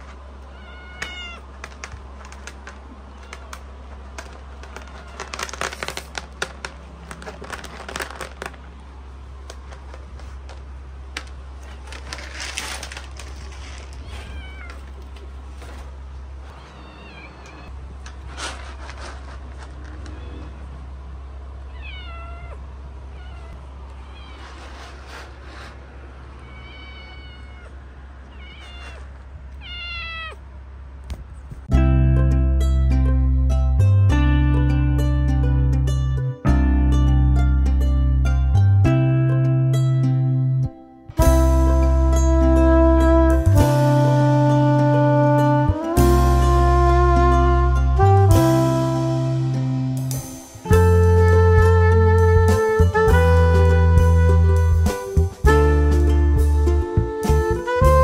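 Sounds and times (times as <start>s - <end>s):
cats meowing: 0.4s - 6.2s, 13.6s - 15.4s, 16.4s - 17.8s, 19.8s - 20.8s, 21.6s - 30.5s.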